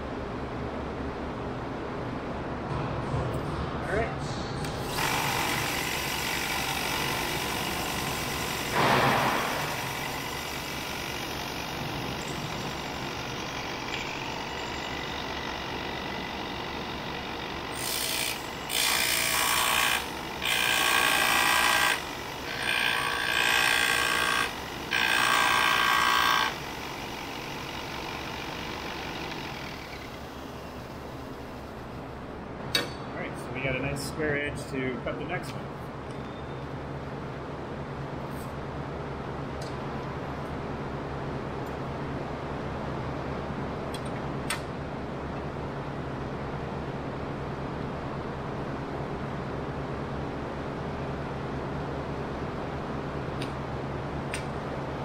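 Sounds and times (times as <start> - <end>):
belt and disc sander running: 4.8 - 31.7.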